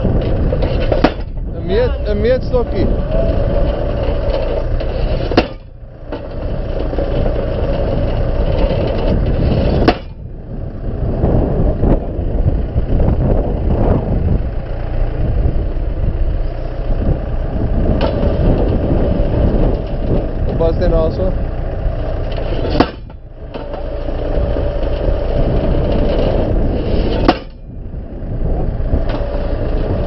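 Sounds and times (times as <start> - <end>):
tractor engine running: 0.0 - 30.0
post driver knocks: 0.2 - 1.5, 3.7 - 9.1, 9.7 - 10.2, 22.3 - 24.0, 27.1 - 27.7.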